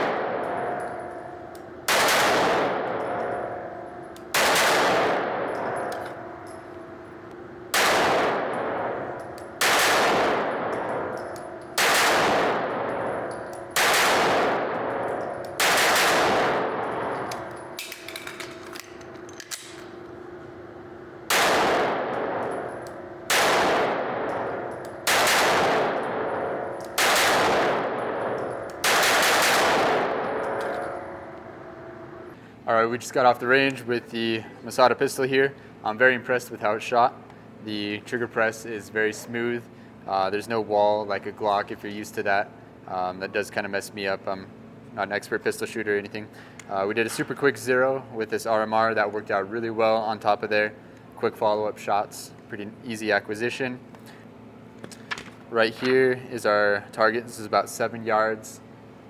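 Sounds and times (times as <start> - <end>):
pistol shots echoing indoors: 0.0 - 20.1, 20.8 - 32.2.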